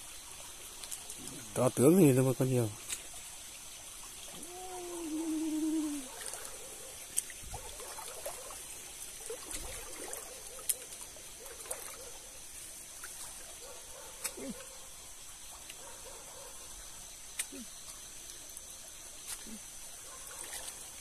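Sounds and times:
stream water trickling: 0.0s - 21.0s
feet wading splashes: 4.3s - 12.2s, 12.8s - 14.7s, 20.3s - 21.0s.

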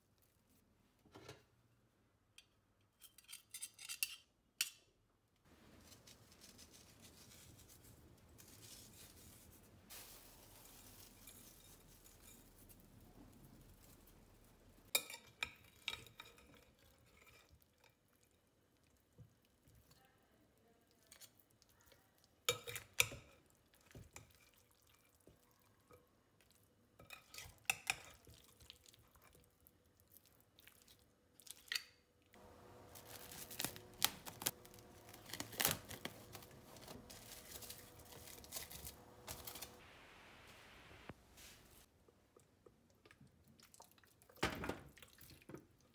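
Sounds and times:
cling film crinkling: 32.4s - 39.9s.

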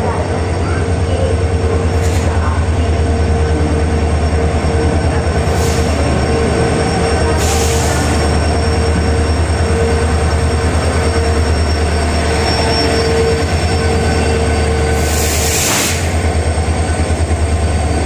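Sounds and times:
diesel locomotive rumble: 0.0s - 18.0s.

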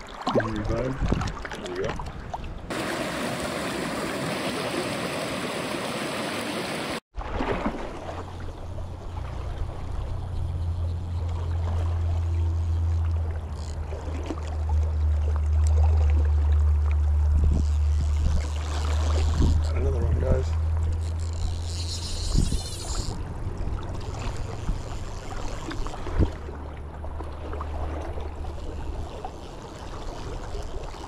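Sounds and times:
river water rushing: 2.7s - 8.0s.

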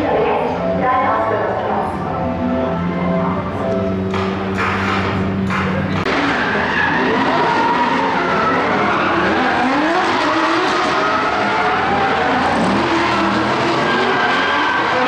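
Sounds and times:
car engines revving: 0.0s - 15.0s
tyre squeal: 5.9s - 15.0s.

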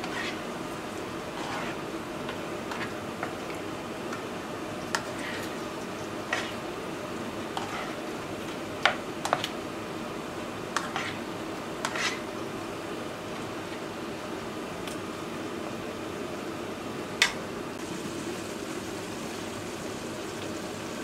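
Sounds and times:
spatula scraping frying pan: 0.0s - 0.5s, 1.2s - 1.9s, 2.7s - 3.4s, 4.9s - 5.6s, 6.2s - 6.6s, 7.5s - 8.6s, 10.8s - 12.3s
steady background noise: 0.0s - 21.0s.

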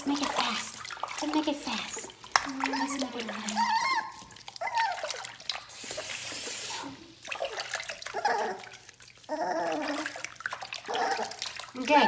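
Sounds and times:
water splashing in a bath: 0.0s - 12.0s
puppy whining and crying: 2.6s - 5.7s, 6.7s - 11.5s.

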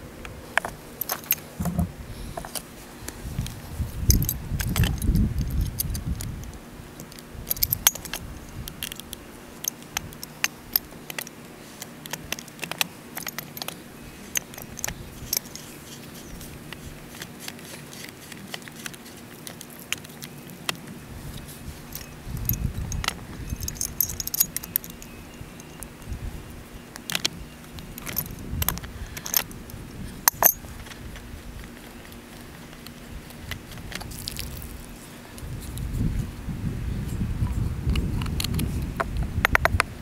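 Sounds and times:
pipe cutter clicking and rattling: 4.1s - 20.8s, 21.9s - 26.1s, 30.3s - 31.0s.

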